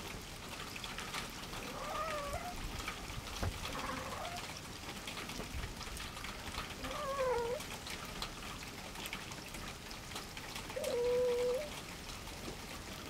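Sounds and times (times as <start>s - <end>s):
faint patter of ticks: 0.0s - 13.0s
cat meowing: 1.7s - 2.6s, 6.8s - 7.6s, 10.8s - 11.7s.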